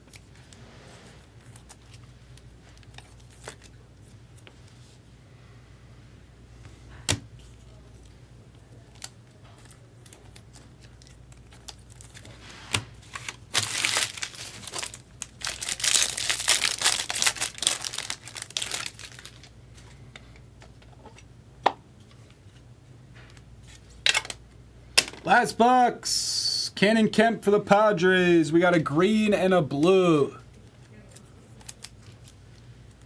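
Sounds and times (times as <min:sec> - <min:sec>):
foil wrapper crinkling and tearing: 0:13.0 - 0:19.5, 0:31.1 - 0:32.4.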